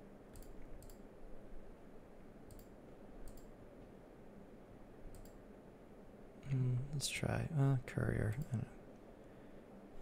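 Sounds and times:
faint low room hum: 0.0 - 10.0
computer mouse clicking: 0.3 - 1.1, 2.4 - 3.6, 5.1 - 5.4.

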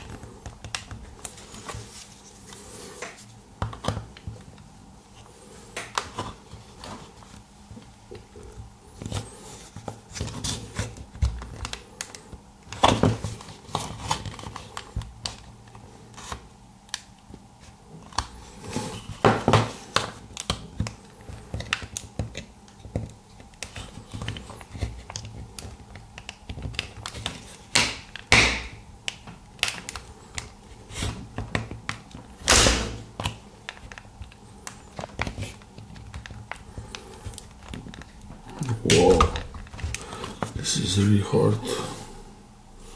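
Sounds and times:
plastic clicks and cracks: 19.6 - 30.6.

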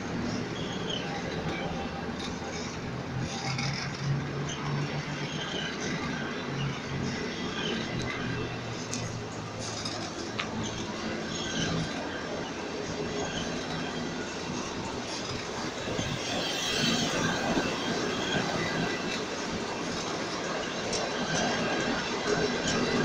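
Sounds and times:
train wheels rushing on rails: 0.0 - 23.0.

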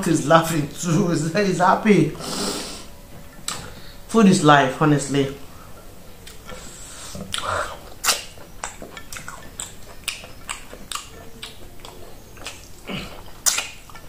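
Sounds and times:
fingers squishing food: 7.2 - 14.0
wet mouth clicks and smacks: 7.3 - 12.7, 13.4 - 14.0.

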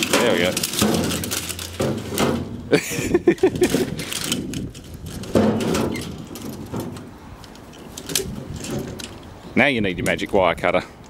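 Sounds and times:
scraping metal crash: 0.0 - 2.7, 5.1 - 7.2
sheet metal clattering and rattling: 0.0 - 9.3.

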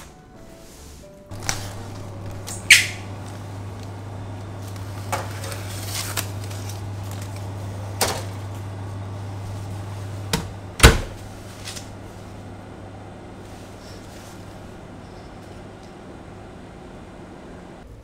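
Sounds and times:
oven humming: 0.0 - 18.0
oven door banging shut: 10.3 - 11.3.

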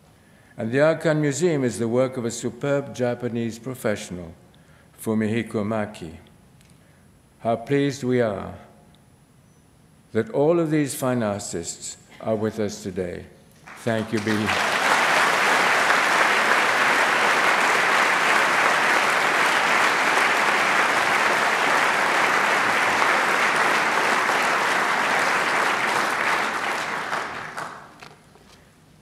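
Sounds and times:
audience applauding: 13.7 - 28.2.

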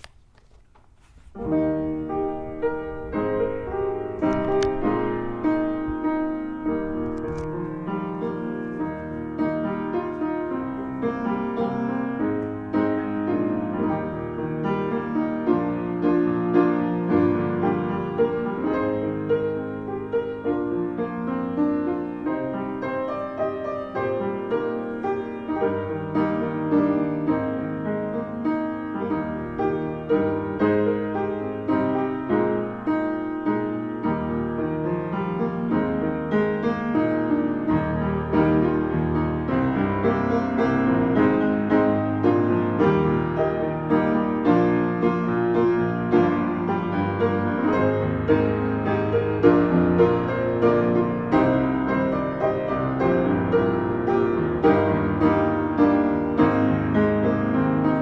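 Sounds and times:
slow solo piano chords: 0.8 - 58.0.

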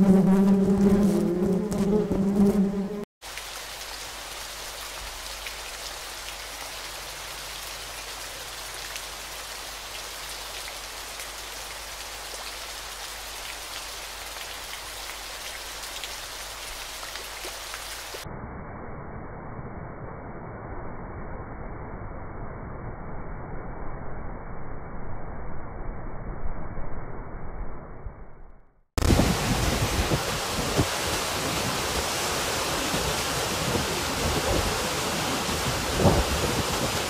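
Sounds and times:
buzzing hum: 0.0 - 3.1
muffled waterfall rush: 29.0 - 37.0
hiss of water: 29.2 - 37.0.

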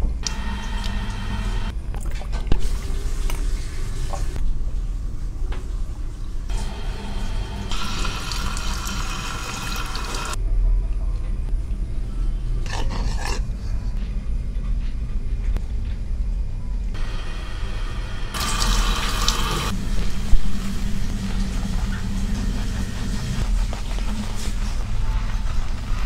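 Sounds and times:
steady low hum: 4.3 - 26.0
shower head spraying water on hair: 6.5 - 10.4, 17.1 - 24.6.

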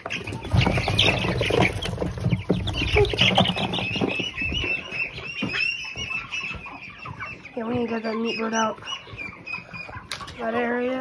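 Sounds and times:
rustling and knocks: 0.0 - 8.0
chicks peeping: 0.0 - 11.0.

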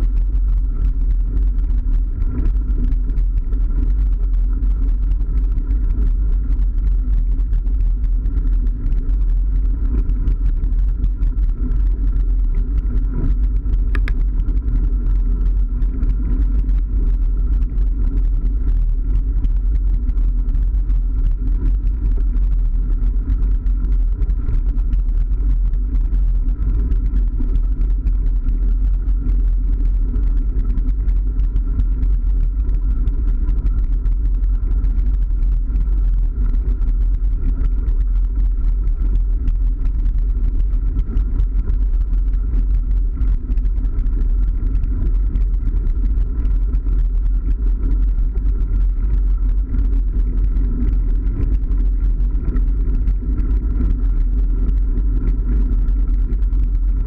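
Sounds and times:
gravel crackling under tyres: 5.4 - 20.5.

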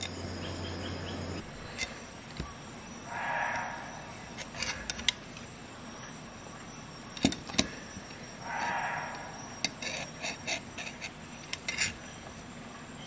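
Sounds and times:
soft rushing sound: 3.1 - 4.4.

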